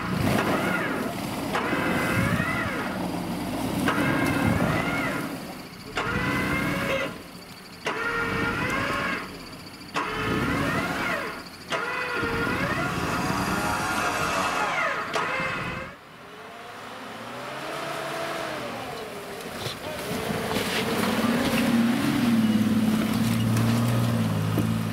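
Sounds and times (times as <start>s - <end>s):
engine revving in snow: 0.0s - 24.9s
approaching vehicle engine: 12.2s - 24.9s.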